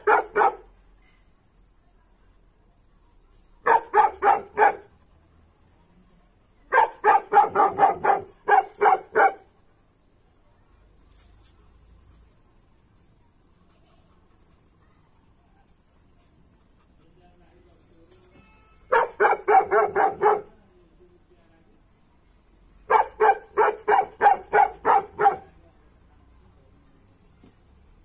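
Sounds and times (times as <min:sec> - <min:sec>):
dog barking: 0:00.0 - 0:00.7, 0:03.6 - 0:04.9, 0:06.7 - 0:09.5, 0:18.9 - 0:20.6, 0:22.9 - 0:25.6.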